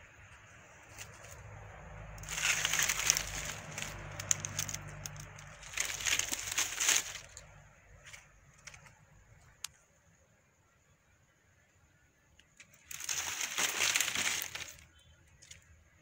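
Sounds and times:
dry palm fronds crackling: 0.8 - 9.8, 12.4 - 15.8.

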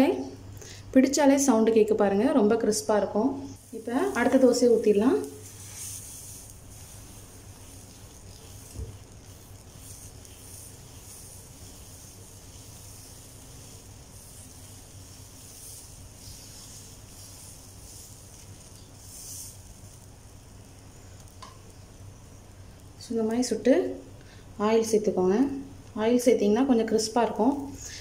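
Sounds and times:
steady low hum: 2.1 - 28.0
batter hissing on hot griddle: 3.5 - 23.0, 27.3 - 28.0.

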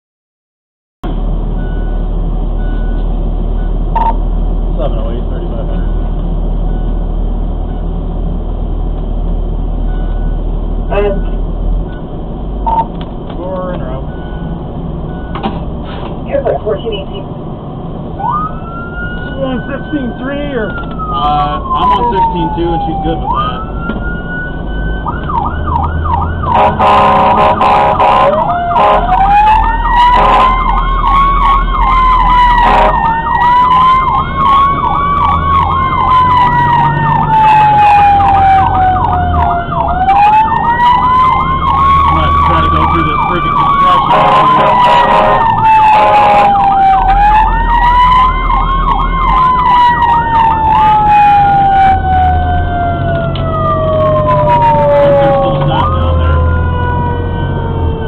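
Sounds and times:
low engine rumble: 1.0 - 58.0
fire engine siren: 1.6 - 8.0, 9.8 - 17.1, 18.0 - 58.0
vehicle horn: 26.5 - 29.1, 30.2 - 30.6, 32.6 - 33.0, 44.1 - 46.6.

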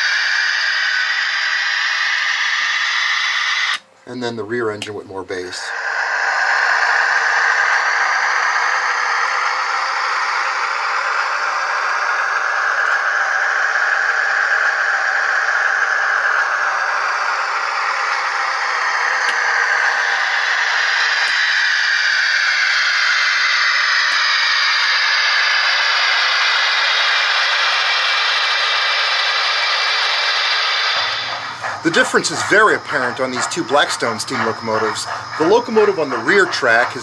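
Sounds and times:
rising whine: 0.0 - 4.3, 5.3 - 37.0
diesel engine sound from small speaker: 5.6 - 37.0.

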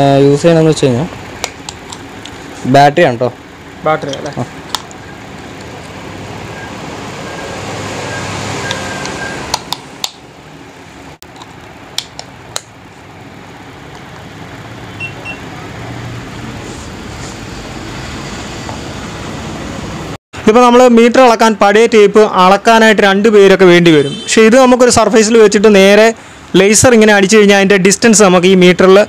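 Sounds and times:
steady background hum: 0.0 - 7.3.

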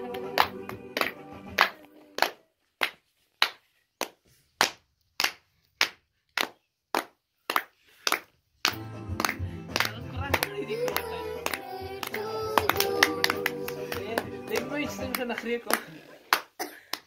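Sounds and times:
music with singing: 0.0 - 2.4, 8.7 - 16.1
hands clapping in rhythm: 0.0 - 17.0.

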